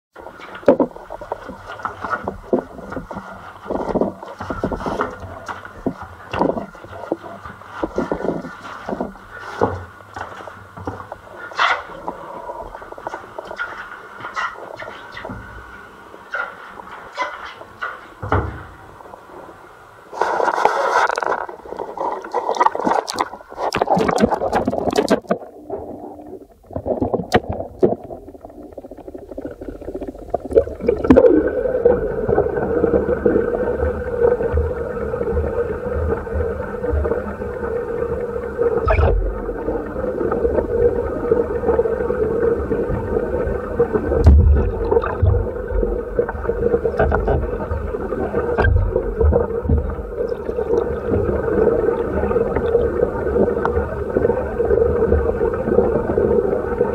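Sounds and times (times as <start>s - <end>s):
droning hum: 0.2s - 56.9s
sharp underwater knocks: 20.2s - 26.0s, 26.6s - 31.6s, 44.1s - 51.4s
dull low thumps: 44.2s - 48.0s, 48.6s - 50.4s.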